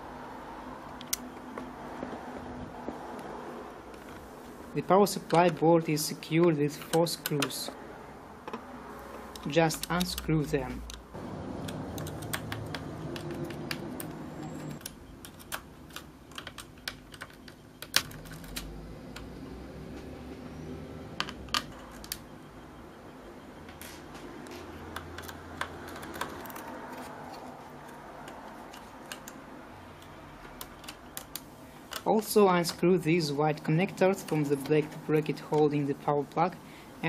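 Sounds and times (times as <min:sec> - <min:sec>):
screwdriver clicks and taps: 0:11.6 - 0:14.2, 0:24.9 - 0:26.7.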